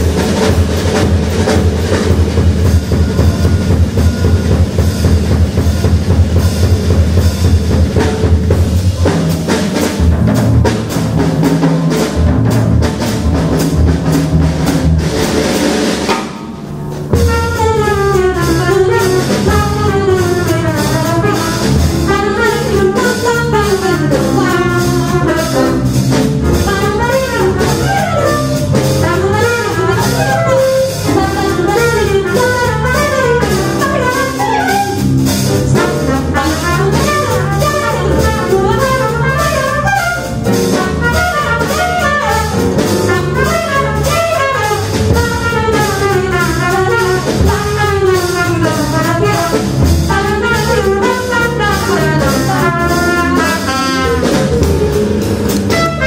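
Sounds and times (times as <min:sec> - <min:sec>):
jazz combo playing: 0:00.0 - 0:56.0
trumpet: 0:17.1 - 0:56.0.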